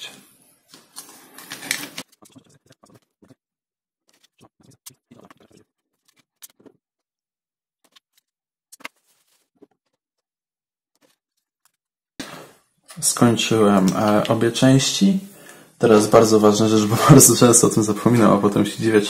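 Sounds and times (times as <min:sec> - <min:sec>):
plastic clicks and rustles: 0:00.7 - 0:03.0.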